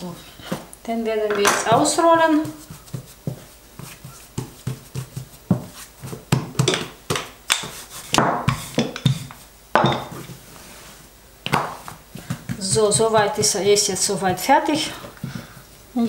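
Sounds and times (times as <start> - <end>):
rolling pin knocking on dough: 1.4 - 10.1, 11.4 - 15.6.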